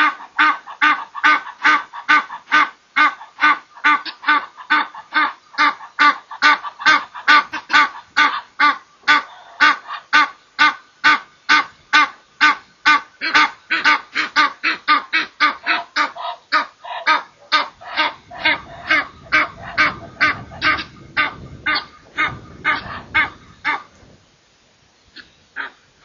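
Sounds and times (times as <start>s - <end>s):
geese honking: 0.0s - 24.0s
low rumbling noise: 17.7s - 25.6s.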